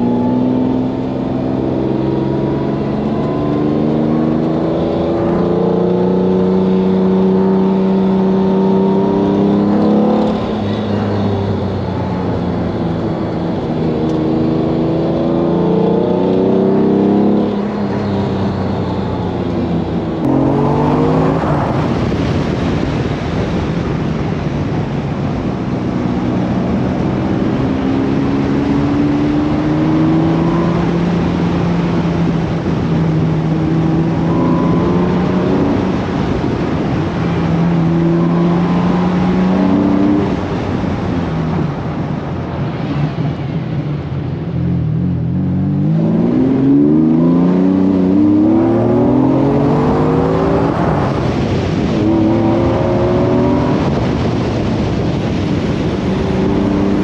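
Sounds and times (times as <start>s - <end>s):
sports car engine accelerating: 0.0s - 24.0s, 24.6s - 57.0s
wind rushing: 19.7s - 44.1s.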